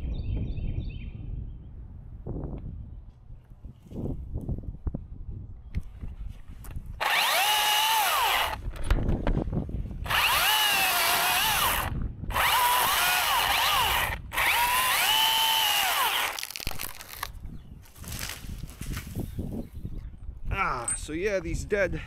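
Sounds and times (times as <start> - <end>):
chainsaw cutting wood: 7.0 - 8.7, 10.0 - 17.4.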